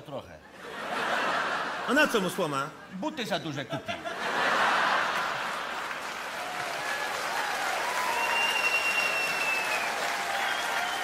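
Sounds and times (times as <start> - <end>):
audience applauding: 4.5 - 11.0.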